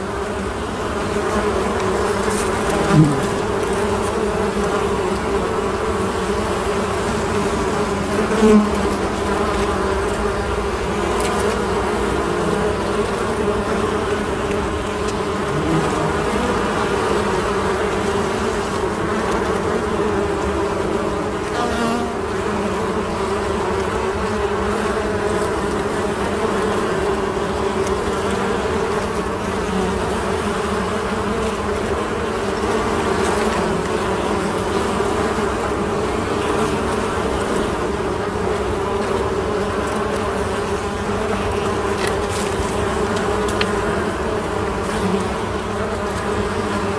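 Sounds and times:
honeybees buzzing: 0.0 - 46.9.

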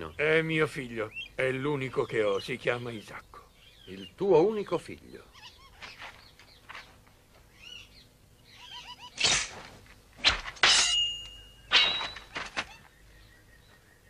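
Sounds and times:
faint chirping: 0.0 - 9.4, 10.8 - 14.0
sword blades clashing: 9.2 - 9.6, 10.2 - 12.7
sword swish: 9.2 - 11.0.

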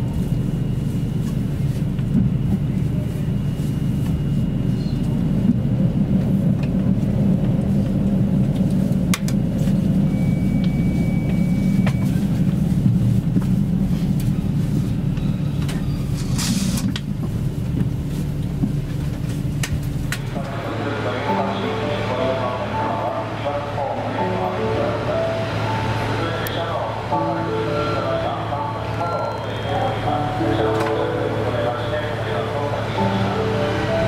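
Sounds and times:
diesel railcar rumble: 0.0 - 34.0
high-pitched whine: 20.2 - 34.0.

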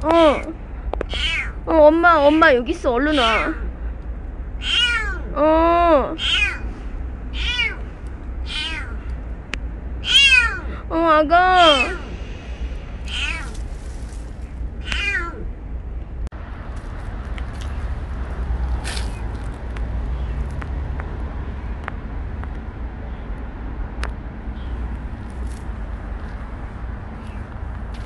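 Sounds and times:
steady low rumble: 0.0 - 28.0
kitten meowing: 1.1 - 1.6, 4.6 - 5.3, 6.1 - 6.6, 7.3 - 7.8, 8.4 - 9.1, 10.0 - 10.7, 11.6 - 12.1, 13.1 - 13.6, 14.8 - 15.4.

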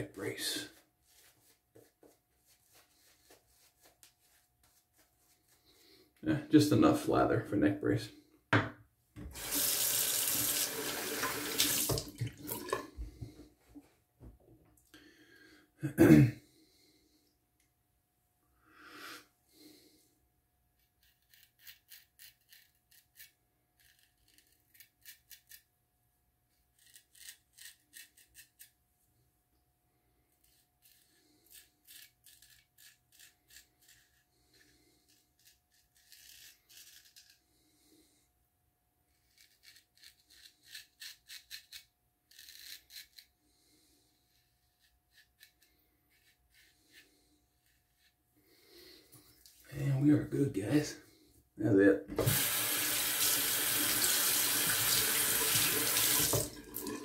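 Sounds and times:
razor scraping stubble: 20.8 - 25.7, 26.6 - 28.8, 30.3 - 37.6, 39.1 - 43.4, 44.2 - 48.2.

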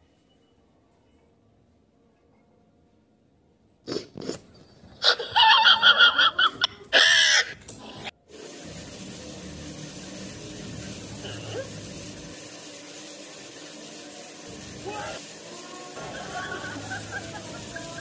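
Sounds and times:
tap running into washbasin: 8.3 - 18.0.

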